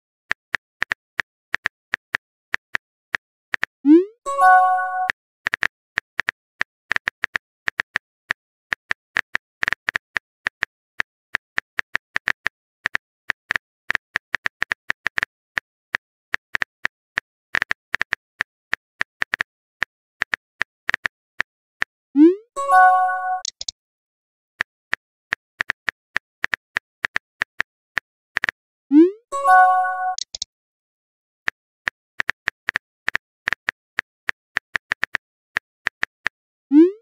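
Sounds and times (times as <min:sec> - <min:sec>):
message alert chime: 0:03.9 - 0:05.1, 0:22.2 - 0:23.5, 0:28.9 - 0:30.2
phone keyboard typing clicks: 0:22.7 - 0:23.7, 0:29.5 - 0:30.4.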